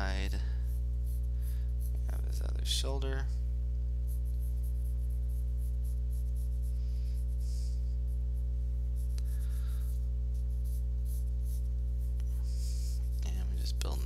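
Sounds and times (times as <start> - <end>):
pencil scratching on paper: 0.0 - 2.1, 4.0 - 14.0
steady low hum: 0.0 - 14.0.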